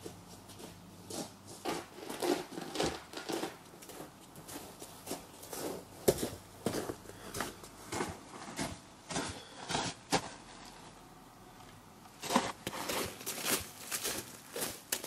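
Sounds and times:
footsteps crunching on snowy leaves: 12.2 - 15.0.

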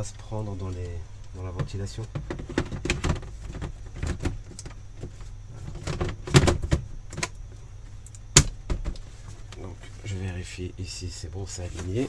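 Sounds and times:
computer case panel clicks and knocks: 1.6 - 4.8, 5.7 - 7.4.

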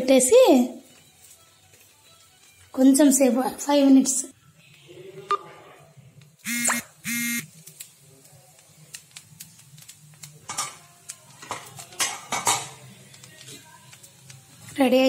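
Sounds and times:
flat buzzing beep: 6.5 - 7.5.

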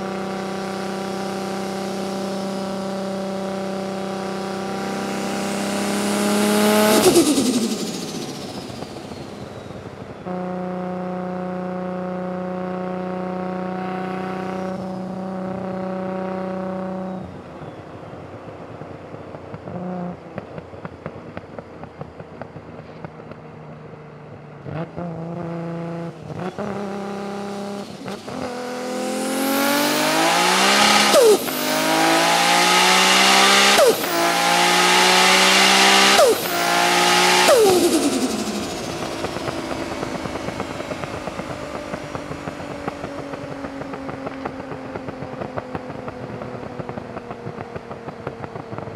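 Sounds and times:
car engine revving: 0.0 - 17.3, 24.6 - 48.9
gear upshifts: 5.6 - 10.1, 26.2 - 44.6.

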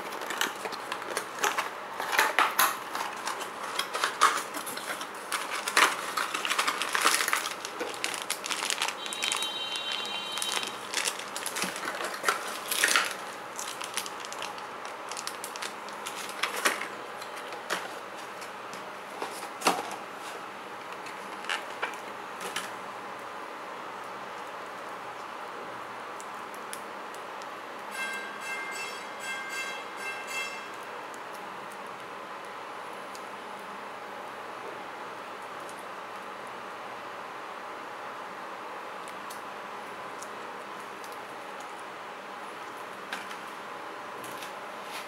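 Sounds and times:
plastic bag crinkling: 0.0 - 18.4.

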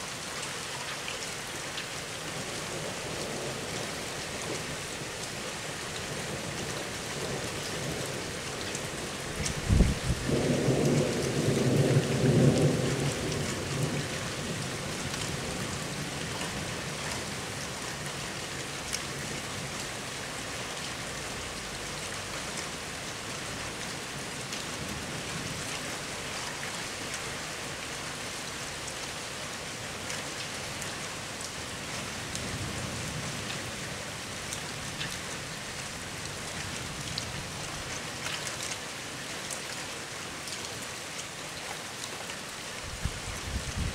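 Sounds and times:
steady downpour of rain: 0.0 - 43.9
low rumble of thunder: 9.3 - 16.9, 42.9 - 43.9.

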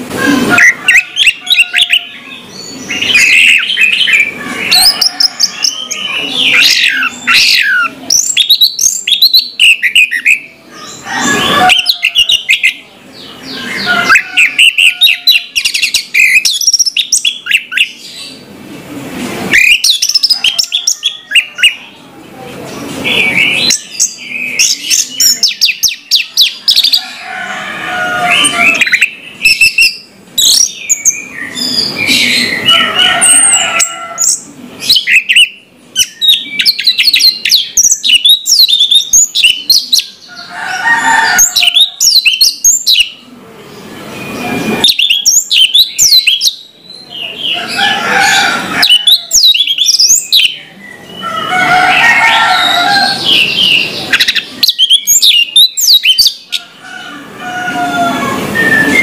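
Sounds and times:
thrush singing chirps and whistles: 58.5 - 59.0.

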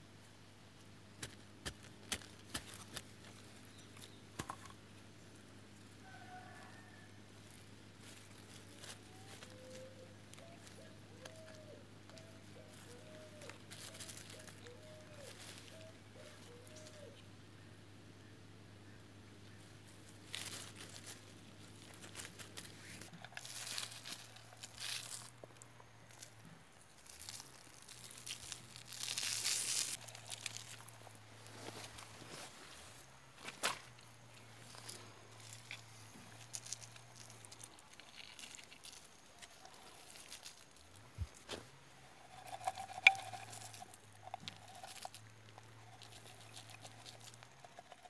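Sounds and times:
rustling of leaf litter: 1.2 - 4.6, 5.3 - 17.2, 19.6 - 48.0
paper sack crinkling: 12.2 - 15.9, 20.2 - 25.4, 26.1 - 48.0.

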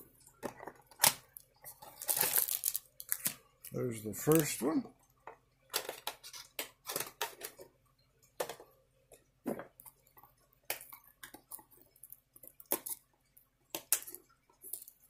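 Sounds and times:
plastic wrap crinkling: 0.2 - 4.7.

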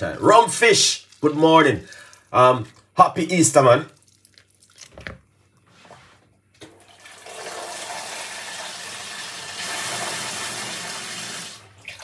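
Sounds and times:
tap running water: 6.6 - 12.0.

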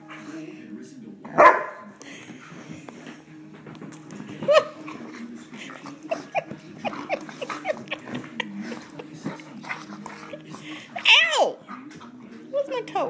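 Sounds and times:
dogs yelping and yipping: 5.7 - 12.3.

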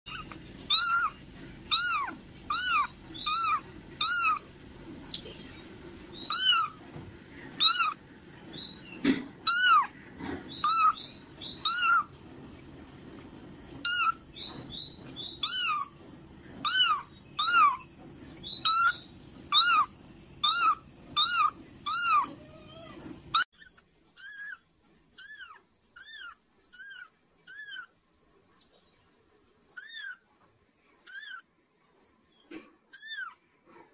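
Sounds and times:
kitten mewing: 0.1 - 4.4, 6.3 - 6.8, 7.6 - 8.0, 9.4 - 10.0, 10.6 - 11.0, 11.6 - 12.1, 13.8 - 14.2, 15.4 - 15.9, 16.6 - 17.8, 18.6 - 23.2.

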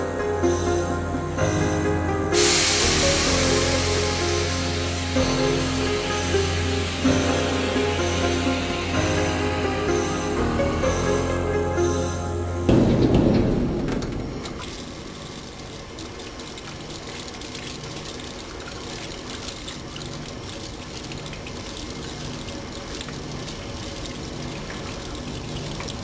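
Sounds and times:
hands rinsed under water: 2.4 - 10.4, 14.5 - 26.0
tap water running into steel sink: 14.4 - 26.0.

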